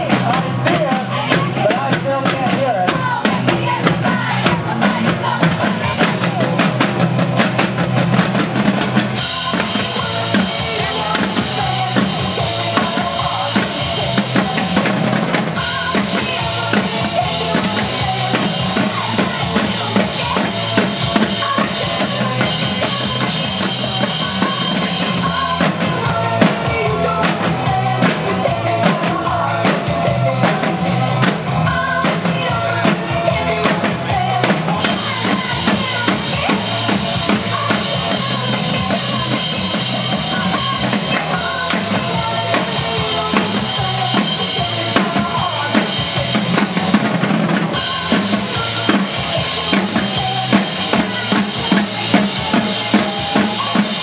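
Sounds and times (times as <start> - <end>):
snare drums playing: 0.0 - 29.8
bass line: 0.0 - 54.0.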